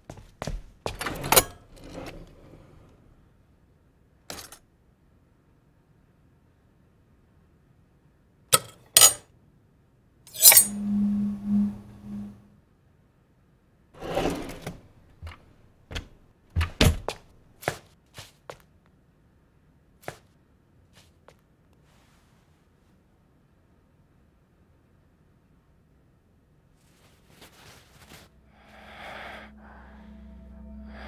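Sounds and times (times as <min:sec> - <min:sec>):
knives clacking in a drawer: 0:08.6 - 0:09.2, 0:10.3 - 0:10.8.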